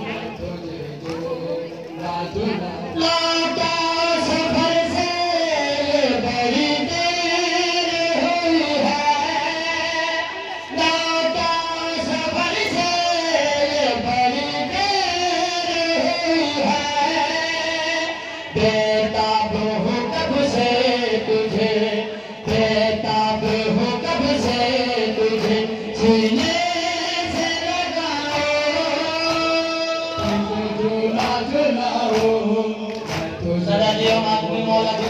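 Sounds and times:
man singing a lament: 0.0s - 35.0s.

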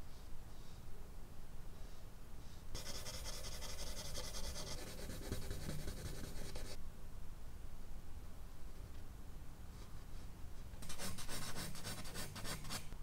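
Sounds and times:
charcoal scratching on paper: 2.8s - 6.8s.

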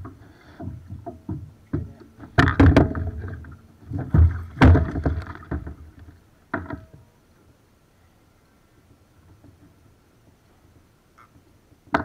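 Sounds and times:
knocks and rattles on plastic kayak: 0.0s - 7.1s, 9.2s - 9.9s, 11.2s - 12.0s.

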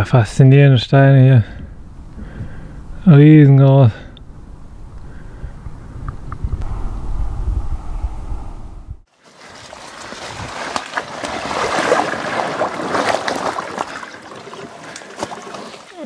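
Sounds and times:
bike tyres splashing through mud: 9.1s - 16.0s.

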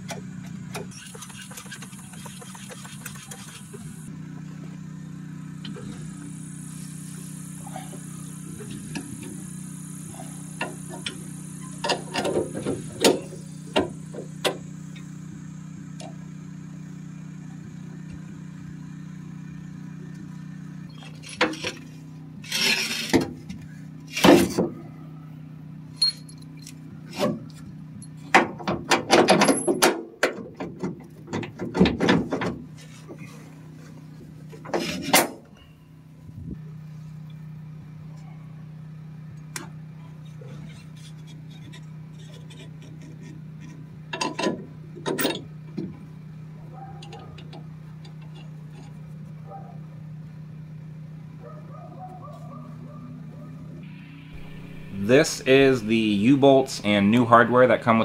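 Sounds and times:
steady low hum: 1.7s - 28.3s, 52.5s - 58.0s
metal clanks and rattles: 28.2s - 33.3s, 44.1s - 46.0s.

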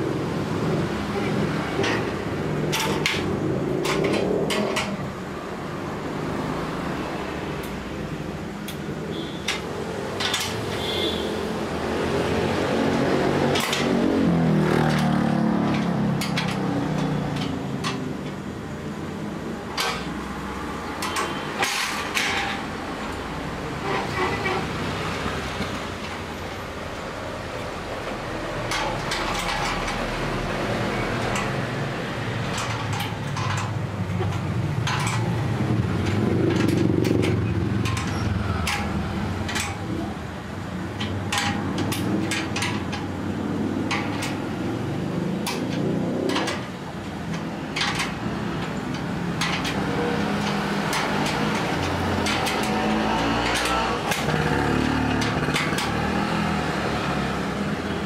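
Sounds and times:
low rumble of traffic: 0.0s - 58.0s
knocks and clanks of parts: 0.1s - 7.9s, 8.5s - 58.0s.

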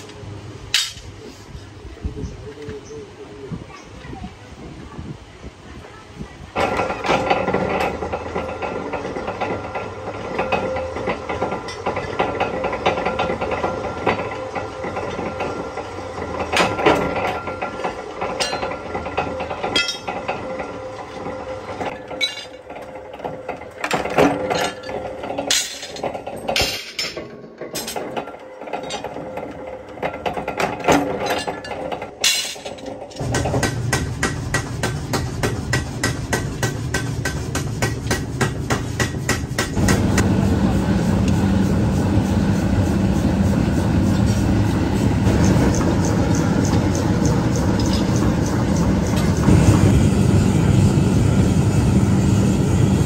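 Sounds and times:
steel pieces clinking: 22.1s - 22.7s, 24.5s - 28.0s, 31.2s - 33.2s.

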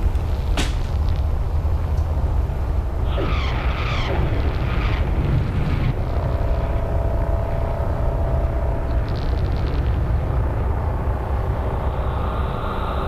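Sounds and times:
deep rumble: 0.0s - 13.0s
steady held tone: 2.9s - 13.0s
creaking bending pitches: 3.0s - 13.0s.

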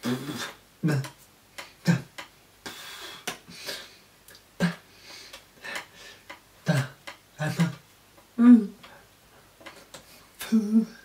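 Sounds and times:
person grunting: 0.0s - 1.2s, 1.8s - 2.1s, 4.6s - 4.8s, 6.6s - 7.8s, 8.4s - 8.8s.

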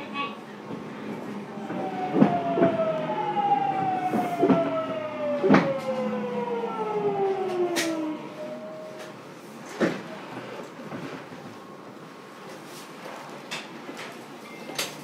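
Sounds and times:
train inverter whining: 0.7s - 9.5s.

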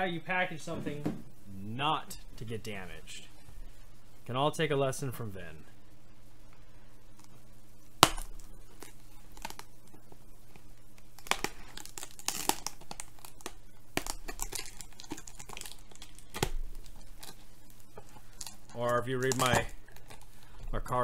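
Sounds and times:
bubble wrap crinkling: 7.1s - 21.0s
packing tape tearing: 8.0s - 9.8s, 10.9s - 20.4s.

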